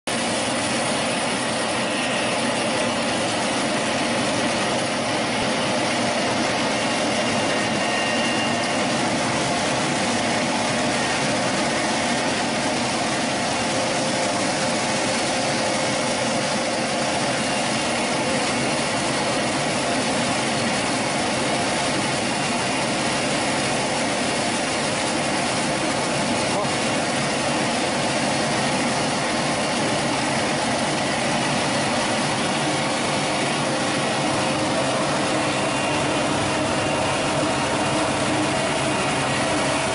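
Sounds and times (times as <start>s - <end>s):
corn peeling machine running: 0.1s - 39.9s.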